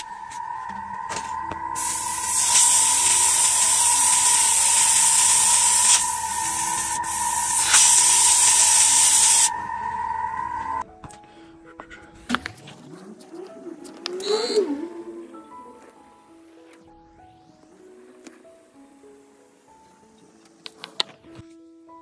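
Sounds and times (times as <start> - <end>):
steady high whine: 0.0 - 10.9
spray paint hissing: 1.2 - 9.6.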